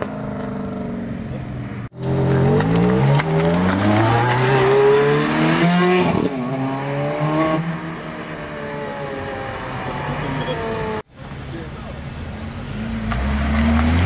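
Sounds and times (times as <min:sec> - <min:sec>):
sports car accelerating hard: 0:02.0 - 0:11.0, 0:12.7 - 0:14.0.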